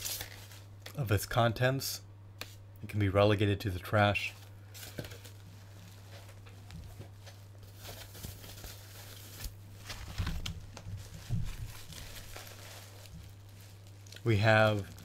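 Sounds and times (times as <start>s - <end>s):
bubble wrap crinkling: 0.0s - 1.0s, 4.4s - 15.0s
steady low hum: 0.0s - 15.0s.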